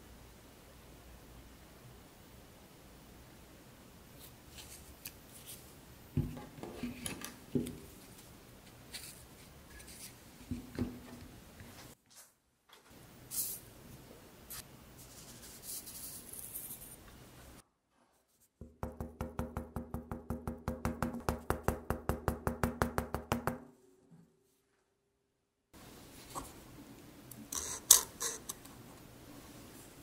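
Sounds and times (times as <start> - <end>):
paper cup knocking on wooden table: 6.2 - 6.8, 10.5 - 11.2.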